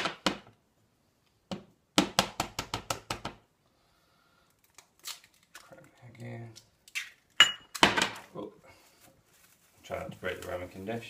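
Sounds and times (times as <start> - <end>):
egg tapped and cracked: 1.5 - 3.4.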